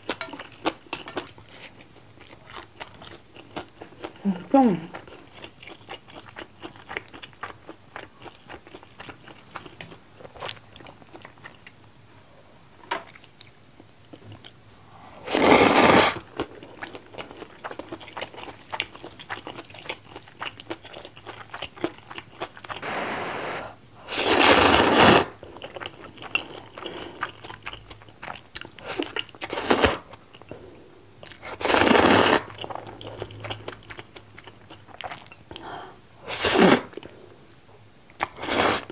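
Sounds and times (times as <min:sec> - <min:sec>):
crunching and chewing: 0:00.0 - 0:04.2, 0:04.9 - 0:11.9, 0:15.8 - 0:22.9, 0:24.3 - 0:35.7
slurping noodles: 0:15.2 - 0:16.2, 0:22.7 - 0:25.4, 0:31.4 - 0:32.5, 0:36.3 - 0:37.0, 0:38.3 - 0:38.9.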